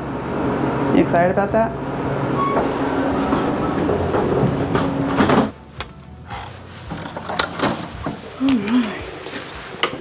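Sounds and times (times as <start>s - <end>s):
elevator humming: 0.0s - 8.4s
elevator doors sliding open: 2.2s - 8.3s.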